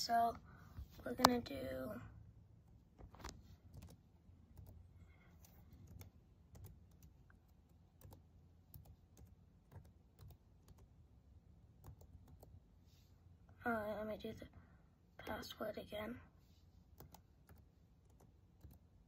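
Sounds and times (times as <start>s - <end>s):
laptop keyboard keystrokes: 3.0s - 4.8s.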